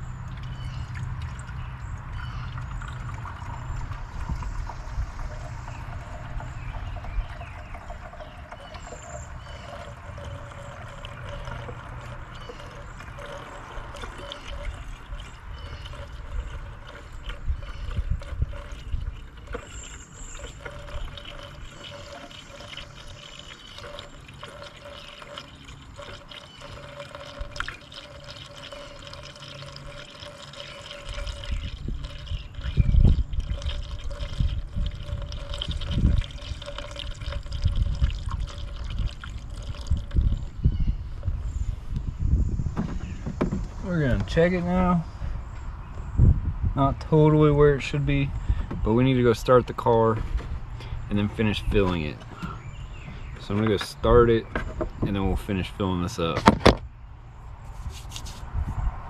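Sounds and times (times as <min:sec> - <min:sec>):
liquid trickling through funnel: 0:00.0 - 0:46.2
low rumbling gusts: 0:01.0 - 0:08.6, 0:31.1 - 0:55.4.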